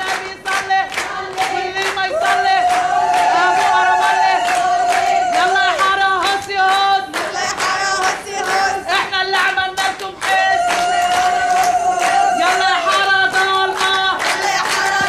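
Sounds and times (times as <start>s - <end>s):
crowd: 0.0s - 15.0s
women ululating: 2.1s - 5.8s, 10.4s - 13.2s.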